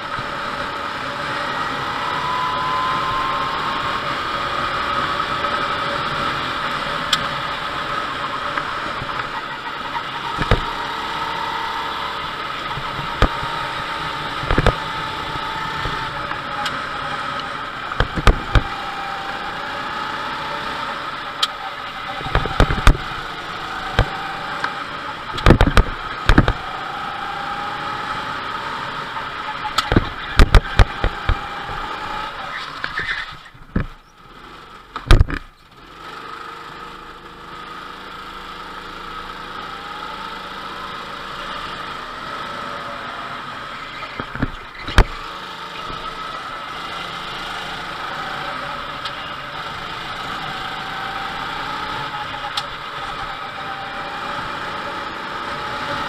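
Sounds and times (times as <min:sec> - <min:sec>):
go-kart engine whine: 0:00.0 - 0:56.0
rushing noise: 0:01.3 - 0:16.2
sharp knocks: 0:10.4 - 0:10.7, 0:18.0 - 0:18.7.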